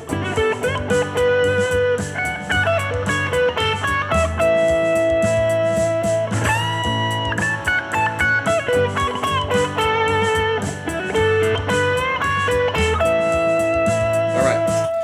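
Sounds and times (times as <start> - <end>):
electric guitar lead: 0.0 - 15.0
rhythm guitar backing: 0.0 - 15.0.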